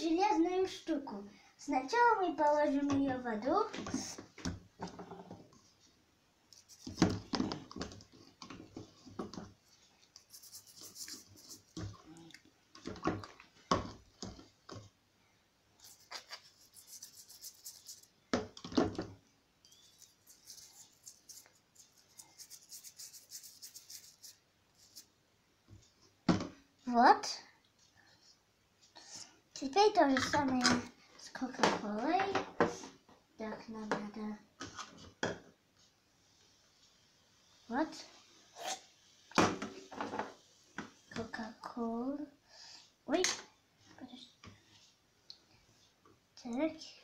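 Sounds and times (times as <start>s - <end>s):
toothbrush scrubbing: 6.6s - 7.0s, 10.0s - 11.9s, 15.8s - 18.1s, 19.7s - 25.1s.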